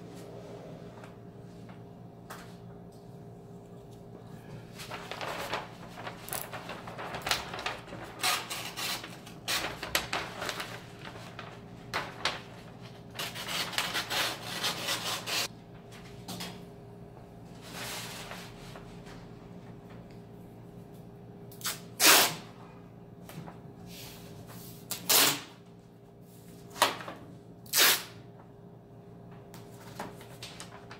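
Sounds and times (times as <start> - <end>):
paper rustling: 4.5 - 15.5, 29.6 - 30.9
knife cutting paper: 13.2 - 15.5.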